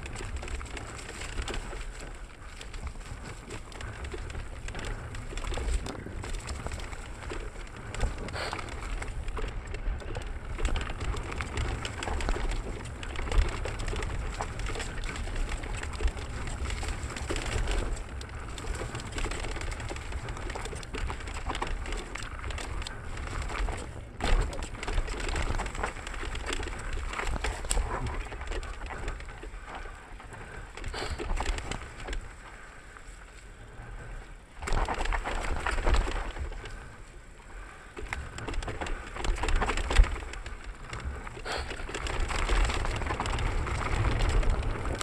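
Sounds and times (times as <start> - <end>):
bike knocks and rattles: 0.0 - 32.3
tyres running over dirt: 0.0 - 45.0.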